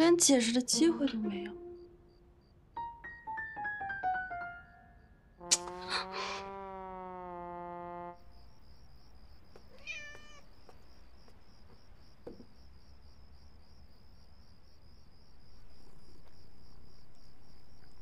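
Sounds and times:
crickets chirping: 0.0s - 18.0s
cat meowing: 9.8s - 10.5s.

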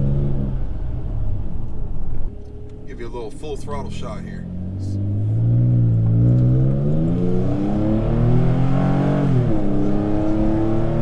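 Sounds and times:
engine at full throttle: 3.7s - 11.0s.

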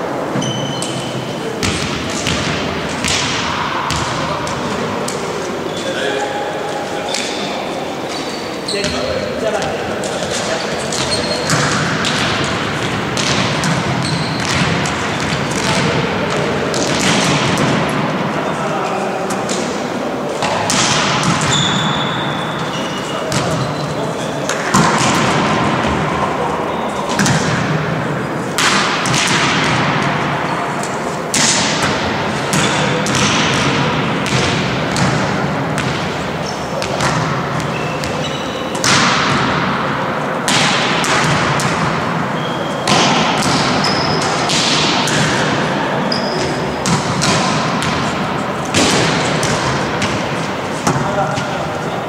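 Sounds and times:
shoes squeaking on floor: 0.3s - 1.5s, 5.5s - 11.8s, 13.9s - 14.6s, 21.4s - 24.5s, 37.6s - 38.8s, 42.3s - 42.9s, 43.7s - 44.5s, 46.0s - 46.8s
volleyball smacks echoing: 1.6s - 5.4s, 8.8s - 18.3s, 20.4s - 22.2s, 24.4s - 26.5s, 27.1s - 51.6s.

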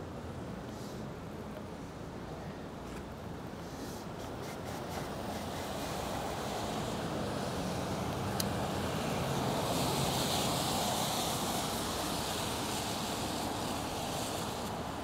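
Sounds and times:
tyres hissing on wet pavement: 0.6s - 1.1s, 3.5s - 15.0s.

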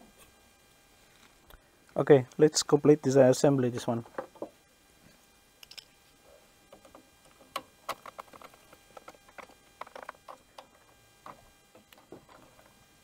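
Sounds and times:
plastic parts and tool clicking: 6.7s - 12.8s.

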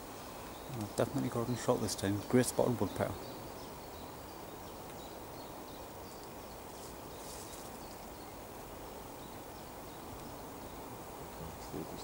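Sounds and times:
steady low hiss: 0.0s - 12.0s.

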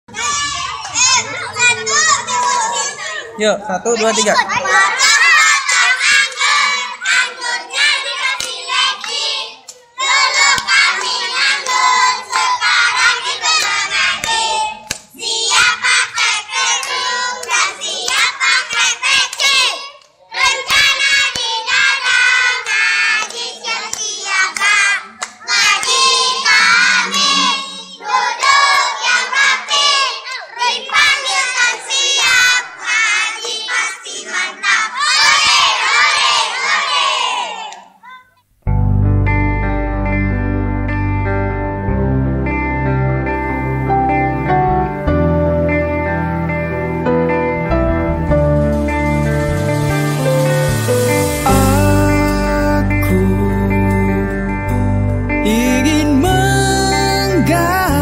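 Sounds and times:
children singing: 4.5s - 37.7s, 50.2s - 53.4s
hand claps: 8.3s - 27.3s.

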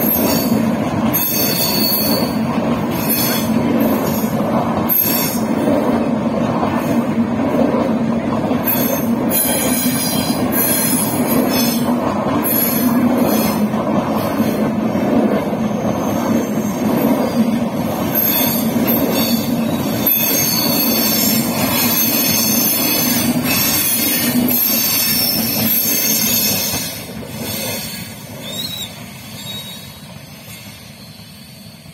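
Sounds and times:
train rushing past: 0.0s - 31.9s
metallic wheel squeal: 1.2s - 3.5s, 18.2s - 31.8s.

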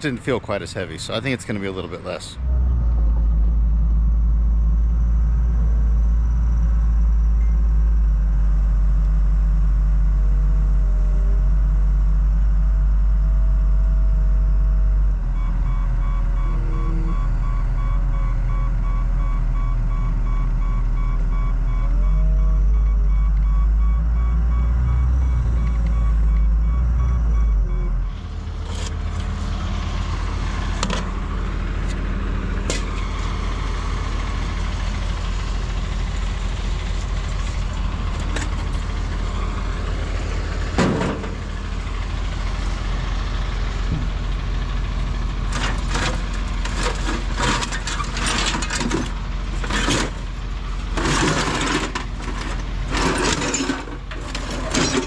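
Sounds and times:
steady low hum: 0.0s - 19.2s
heavy equipment engine running: 0.0s - 55.0s
backup alarm beeping: 15.4s - 28.3s, 32.8s - 34.7s, 38.9s - 39.9s
scrap metal clanking: 45.5s - 50.2s, 50.9s - 55.0s.

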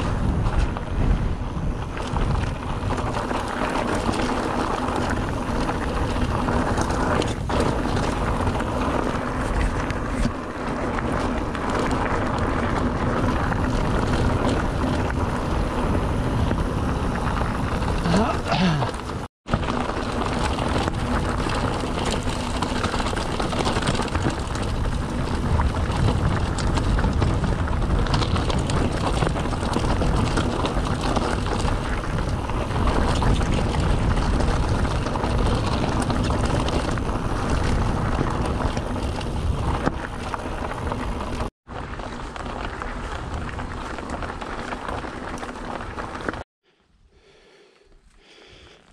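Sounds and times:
wind rushing over microphone: 0.0s - 46.4s
bike tyres rolling and rattling: 0.0s - 46.5s.

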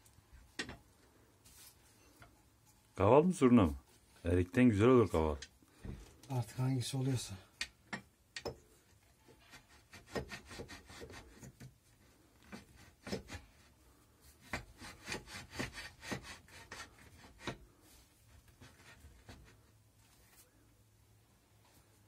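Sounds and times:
clicks and knocks of lathe parts: 7.6s - 8.7s.

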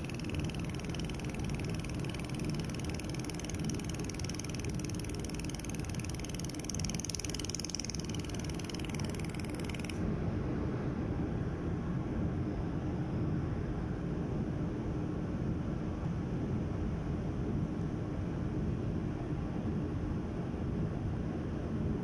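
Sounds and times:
laser welder crackling buzz: 0.0s - 10.0s
low machine hum: 0.0s - 22.0s.

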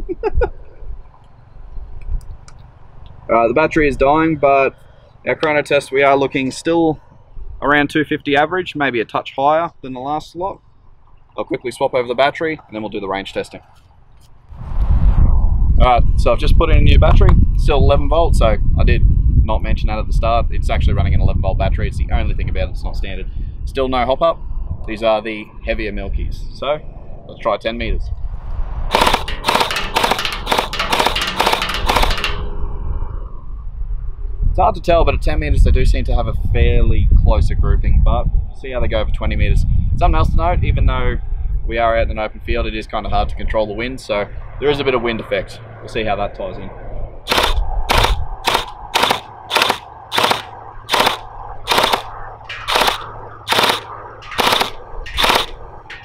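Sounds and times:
low wind rumble: 0.0s - 56.0s
gel blaster shots clacking: 28.9s - 32.5s, 47.3s - 56.0s.

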